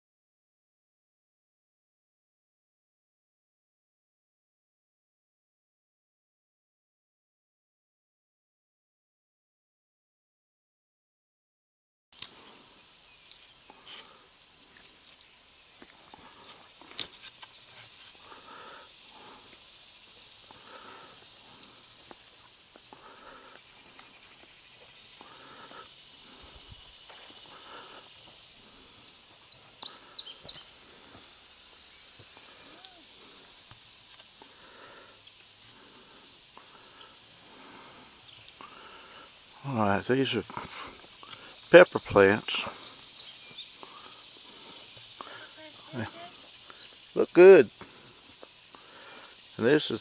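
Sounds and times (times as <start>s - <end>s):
insects droning: 12.2s - 50.0s
footsteps on soil: 26.3s - 33.4s.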